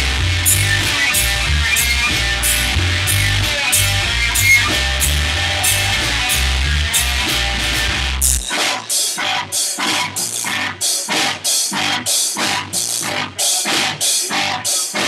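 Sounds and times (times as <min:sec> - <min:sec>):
heavy bass: 0:00.0 - 0:08.6
band playing clipped hits: 0:00.0 - 0:12.7
rock band playing: 0:00.0 - 0:15.0.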